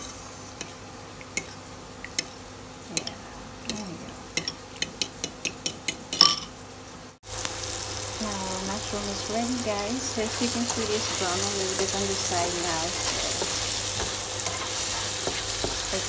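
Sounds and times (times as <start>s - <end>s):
mushrooms sizzling in a pan: 7.2s - 16.0s.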